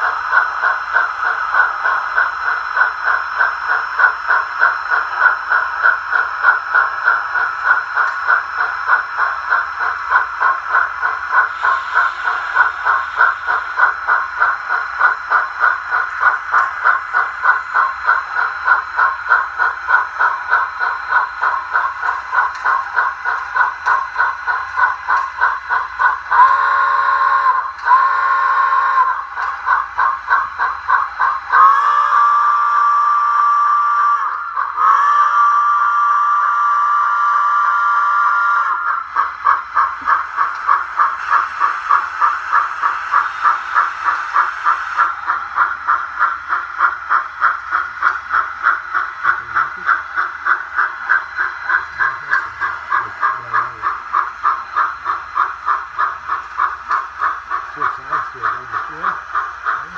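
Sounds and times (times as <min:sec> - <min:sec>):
electronic steam chuffing: 0:00.0 - 0:59.9
locomotive whistle blasts: 0:26.4 - 0:29.1, 0:31.6 - 0:38.8.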